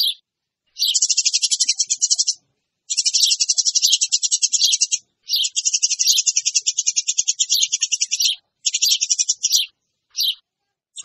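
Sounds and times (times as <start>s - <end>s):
sparrows chirping rapidly: 0.0s - 11.0s.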